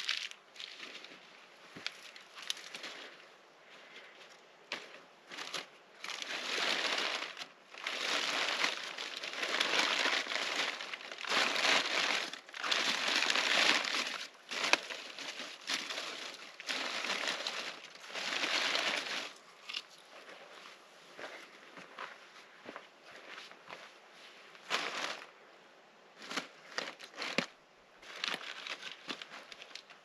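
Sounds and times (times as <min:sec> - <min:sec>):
paper crinkling: 0:04.7 - 0:19.9, 0:26.2 - 0:30.0.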